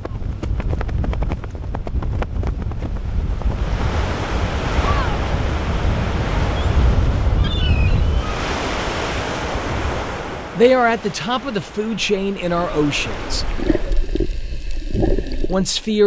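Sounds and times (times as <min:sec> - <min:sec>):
flag flapping in strong wind: 0:00.0 - 0:07.4
wind buffeting microphone: 0:00.0 - 0:08.8
surf breaking on a beach: 0:03.0 - 0:07.4, 0:08.1 - 0:14.3.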